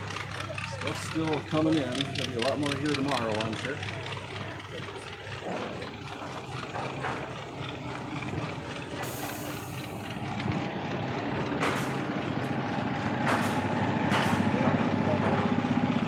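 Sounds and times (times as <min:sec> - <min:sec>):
engine running: 0:00.0 - 0:16.0.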